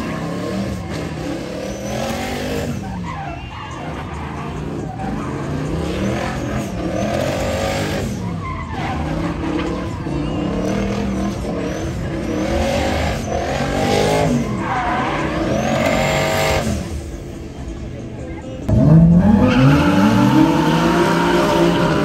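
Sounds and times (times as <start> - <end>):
tyres skidding: 0.0 - 22.0
car engine revving hard: 18.7 - 22.0.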